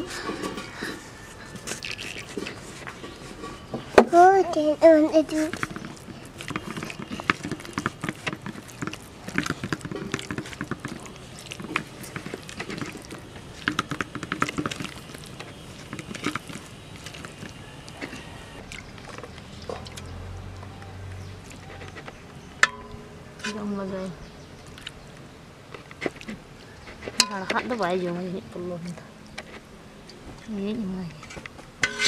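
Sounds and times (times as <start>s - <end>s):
hand squelching wet paste: 1.4s - 3.6s, 5.2s - 22.3s.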